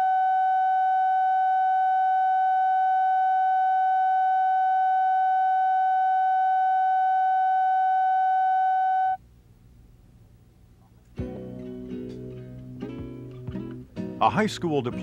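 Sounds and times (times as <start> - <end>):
steady test tone: 0.0 - 9.2
faint low hum: 0.0 - 14.0.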